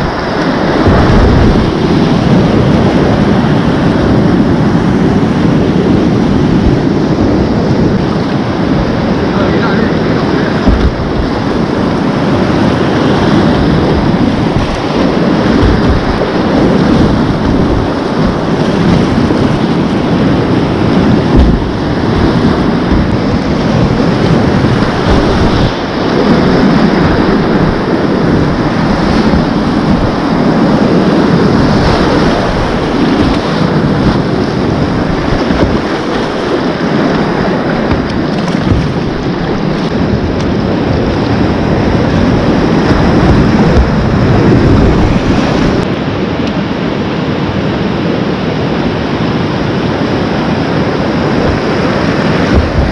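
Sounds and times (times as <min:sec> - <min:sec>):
rush of churning rapids: 0:00.0 - 0:52.9
paddle stroke splashes: 0:09.9 - 0:45.8
brief low thumps: 0:10.6 - 0:11.4, 0:21.3 - 0:24.0.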